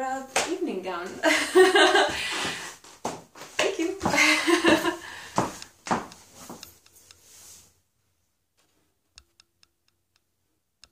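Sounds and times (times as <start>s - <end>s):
heeled footsteps on hardwood floor: 0.4s - 6.8s
faint clicks: 9.2s - 10.9s.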